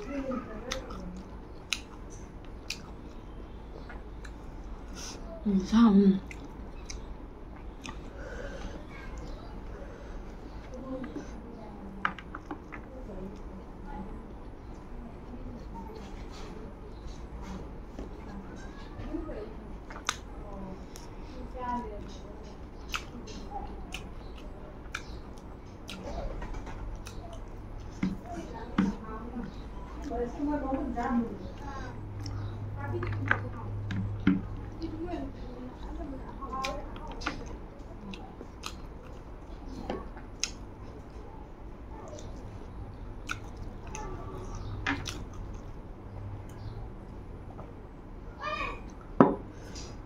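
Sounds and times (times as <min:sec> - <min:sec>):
person chewing rice: 0:00.6 - 0:05.0, 0:06.2 - 0:11.2, 0:19.8 - 0:21.3, 0:22.0 - 0:30.2, 0:31.6 - 0:33.2, 0:36.6 - 0:41.2, 0:42.1 - 0:45.8.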